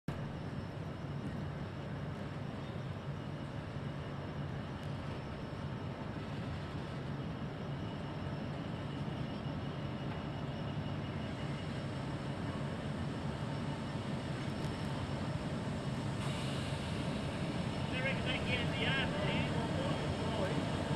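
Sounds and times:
distant locomotive drone: 0.1 - 20.9.

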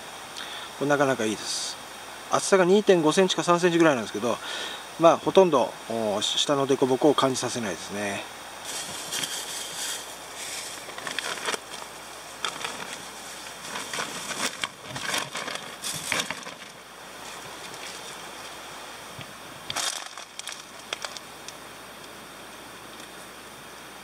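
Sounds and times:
steady hiss: 0.0 - 24.0
rustling and crinkling handling: 8.6 - 18.6, 19.2 - 21.6
plastic food packet crinkling: 8.7 - 16.8, 19.7 - 21.6.

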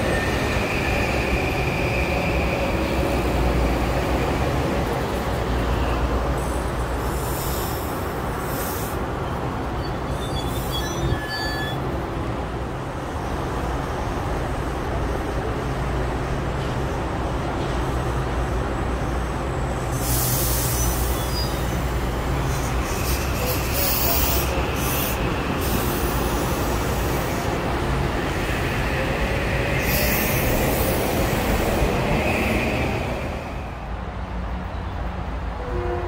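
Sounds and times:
train wheels rumbling on rail: 0.0 - 36.0
faint wheel squeal: 9.2 - 11.8, 20.6 - 21.8.

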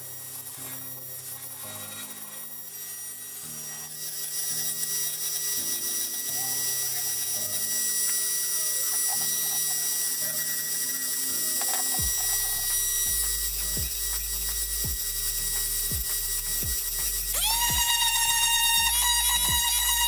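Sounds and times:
rotary tool whining: 0.0 - 20.0
background music with bass line: 12.0 - 18.1.

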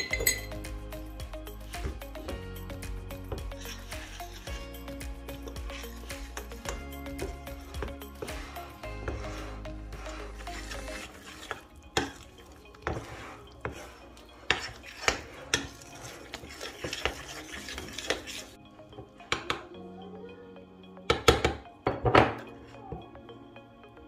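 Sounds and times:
cutlery clinking and scraping bowl: 0.0 - 0.7, 3.2 - 18.6.

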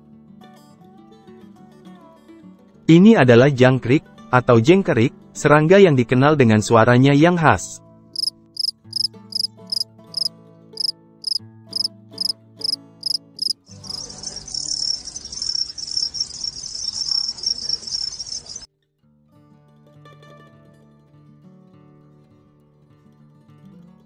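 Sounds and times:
crickets chirping: 8.2 - 18.7.

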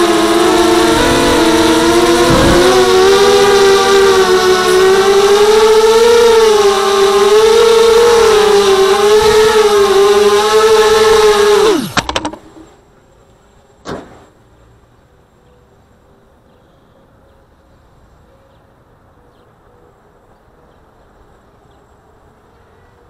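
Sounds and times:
drone motors whining: 0.0 - 12.6.

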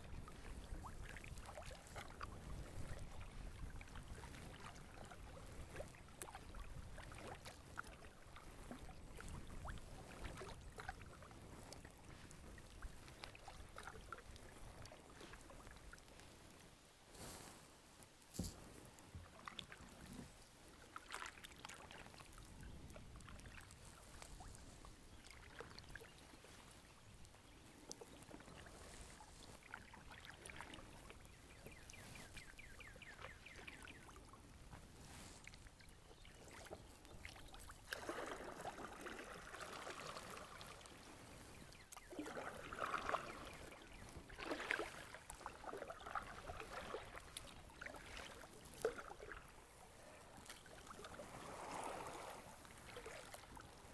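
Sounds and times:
paddle dripping and splashing: 0.0 - 17.4, 18.4 - 53.9.

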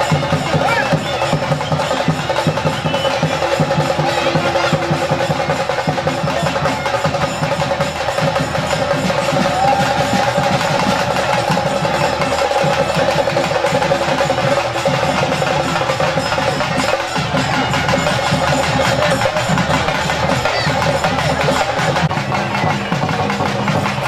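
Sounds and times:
clacking percussion: 0.0 - 24.0
fast drumming: 0.0 - 24.0.

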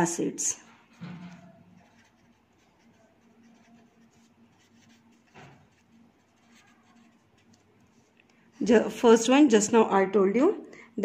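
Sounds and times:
pencil scratching on paper: 0.8 - 8.1.

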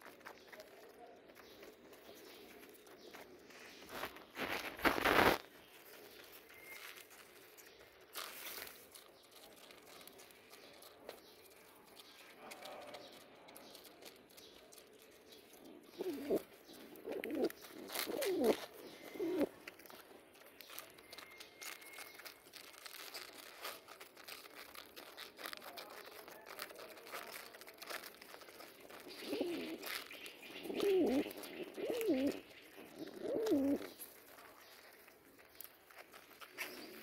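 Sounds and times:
beaks pecking feed: 0.0 - 37.0
pigeons cooing: 15.6 - 19.7, 28.9 - 34.1.

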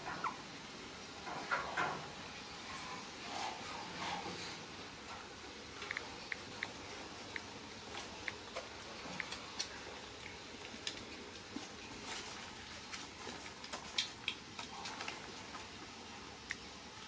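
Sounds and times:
puppy paws pattering on concrete: 5.8 - 16.6.

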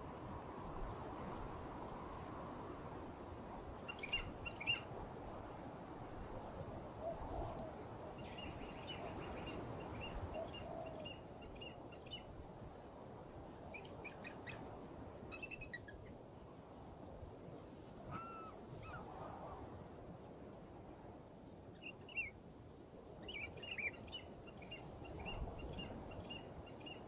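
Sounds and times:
small birds chirping: 3.9 - 4.8.

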